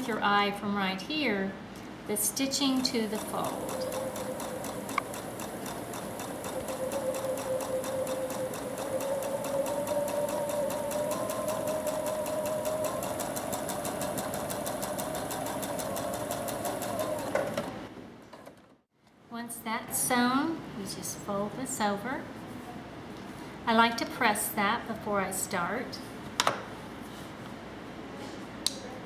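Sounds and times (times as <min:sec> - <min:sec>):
sewing machine stitching: 0:02.6 - 0:18.7.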